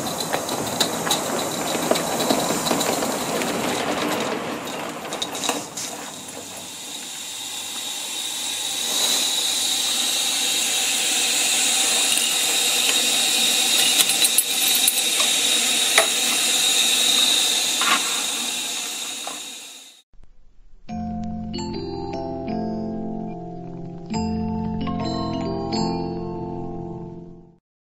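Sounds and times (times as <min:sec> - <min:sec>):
steam locomotive hissing: 0:00.0 - 0:20.0.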